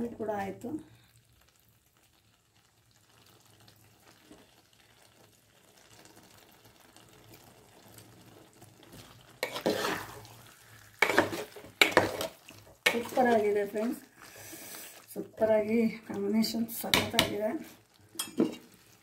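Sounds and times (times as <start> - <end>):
metal spoon scraping a pot: 9.4 - 10.3, 10.9 - 13.5.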